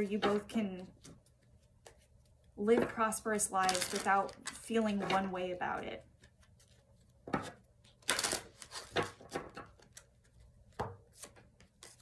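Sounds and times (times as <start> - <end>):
cards rustling: 7.9 - 12.0.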